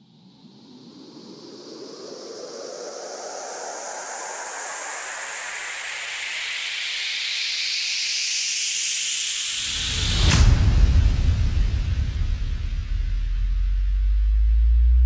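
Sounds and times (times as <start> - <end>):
white-noise riser sweeping up: 1.7 - 15.0
heavy bass hit: 9.9 - 15.0.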